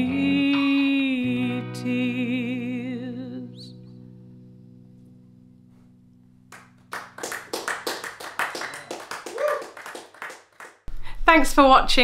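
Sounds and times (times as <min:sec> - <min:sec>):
person singing: 0:00.0 - 0:03.7
electric guitar chord ringing: 0:00.0 - 0:07.0
people clapping: 0:06.5 - 0:10.9.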